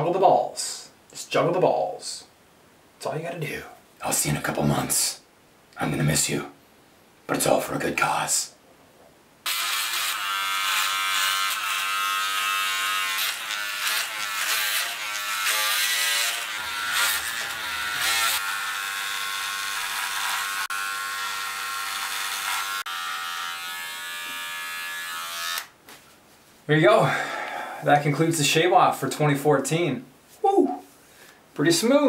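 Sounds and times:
electric hair clipper buzzing: 9.5s - 25.8s.

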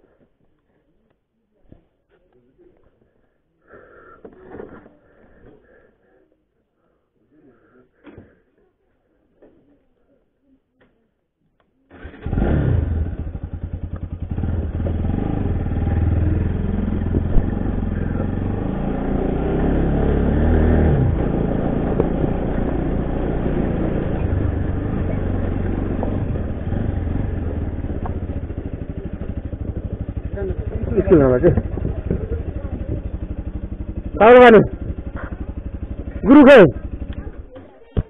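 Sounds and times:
engine running: 12.0s - 37.7s.

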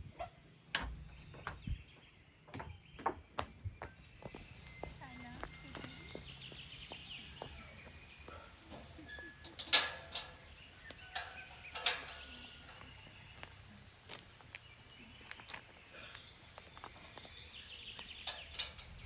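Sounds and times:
metal gate clanking: 8.7s - 13.1s, 18.2s - 19.0s.

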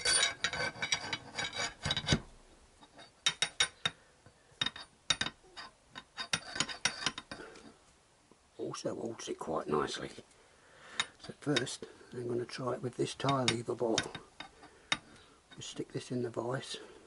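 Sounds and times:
metal bar scraping inside tube: 0.0s - 2.3s.

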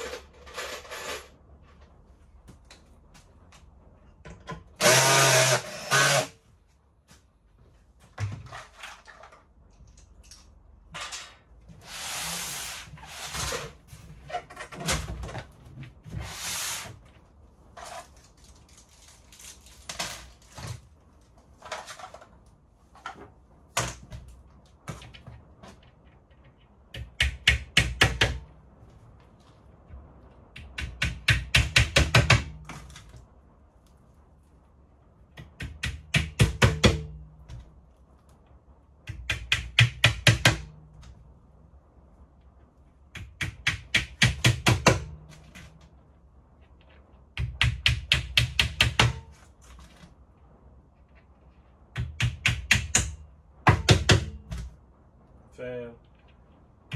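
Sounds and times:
panels and tools knocking: 22.9s - 28.6s, 30.5s - 33.0s, 35.3s - 37.8s, 39.0s - 41.1s, 43.1s - 45.8s, 47.3s - 50.0s, 51.9s - 54.8s.

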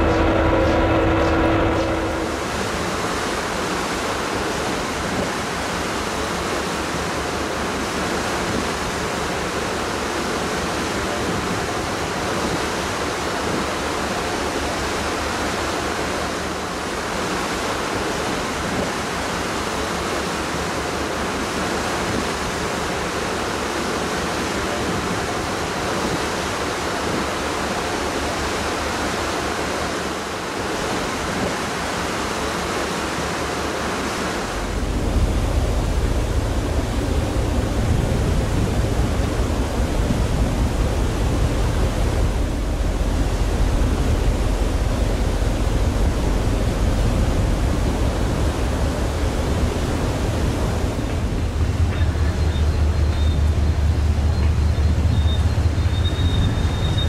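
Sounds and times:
wind rushing: 0.0s - 3.2s
sea rushing: 0.0s - 57.0s.

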